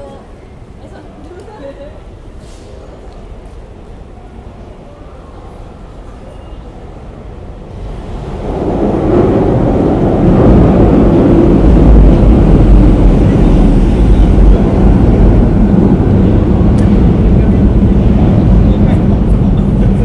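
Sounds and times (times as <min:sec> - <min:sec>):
wind buffeting microphone: 0:06.8 - 0:20.0.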